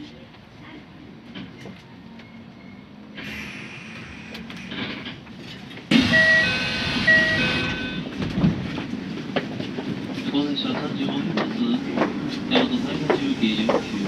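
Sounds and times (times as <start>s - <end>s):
electric train humming: 3.2s - 9.6s
descending two-note door chime: 5.9s - 8.0s.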